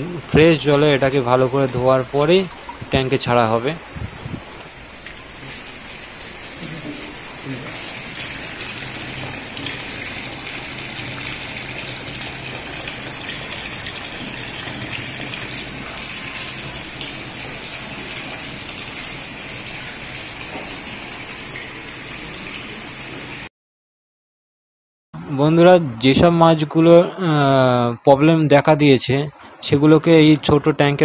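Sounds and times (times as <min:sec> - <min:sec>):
water pouring into a tank: 0:00.0 - 0:23.5.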